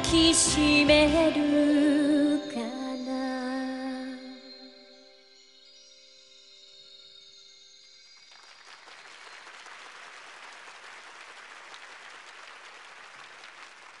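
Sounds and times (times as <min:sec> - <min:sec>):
large audience applauding: 0:08.3 - 0:14.0.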